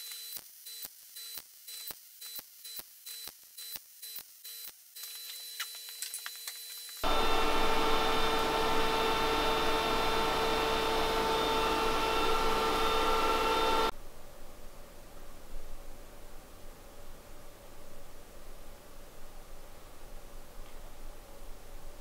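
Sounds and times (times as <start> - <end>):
welder crackling: 0.0 - 13.9
loud steady machine hum: 7.0 - 13.9.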